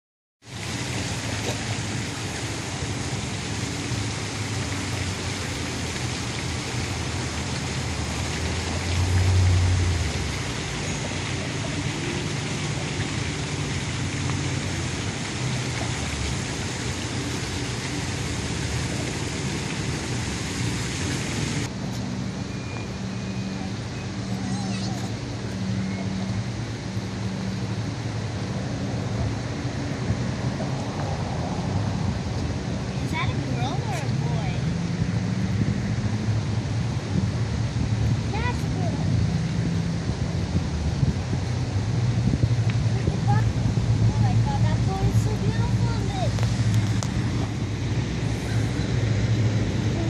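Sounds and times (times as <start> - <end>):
water rushing through lock gate: 0.5 - 50.0.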